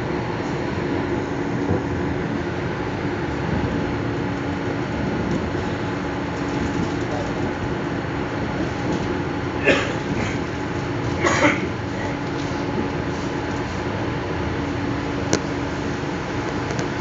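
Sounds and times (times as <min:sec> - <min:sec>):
low hum: 0:00.0 - 0:17.0
train wheels rumbling on rails: 0:00.0 - 0:17.0.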